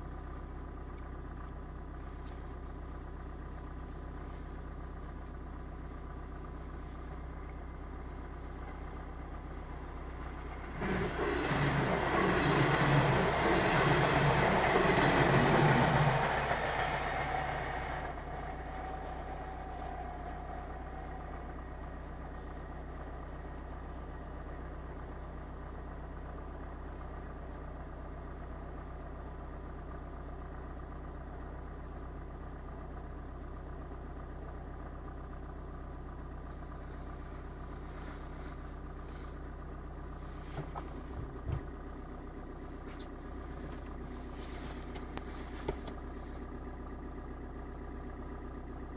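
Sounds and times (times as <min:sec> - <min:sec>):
car engine idling: 0:00.0 - 0:48.9
train rushing past: 0:10.6 - 0:21.6.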